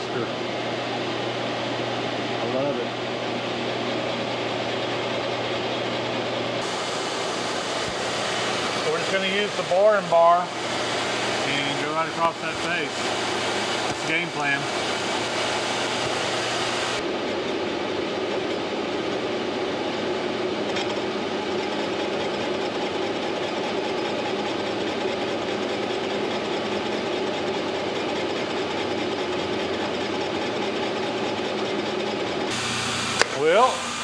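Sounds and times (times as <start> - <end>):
lathe cutting metal: 6.6 - 17.0, 21.7 - 34.0.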